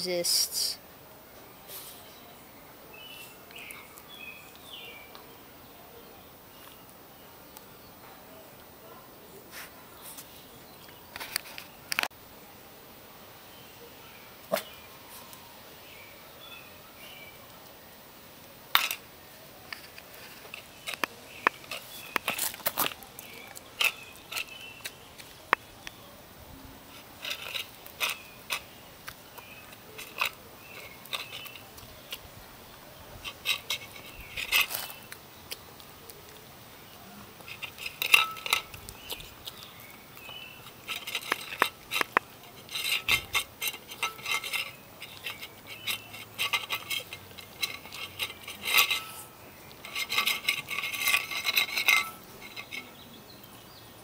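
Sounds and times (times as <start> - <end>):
clinking against metal bowl: 37.5 - 38.7, 40.9 - 53.0.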